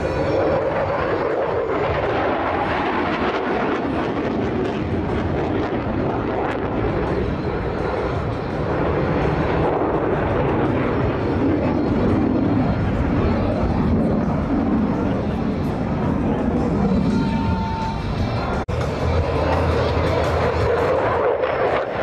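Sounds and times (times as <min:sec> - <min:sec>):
jet engine rush: 0:00.0 - 0:22.0.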